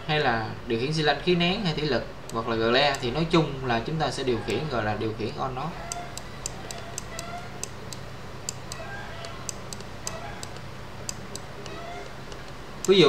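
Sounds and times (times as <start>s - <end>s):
low steady hum: 0.0s - 13.0s
stylus tapping tablet screen: 5.9s - 13.0s.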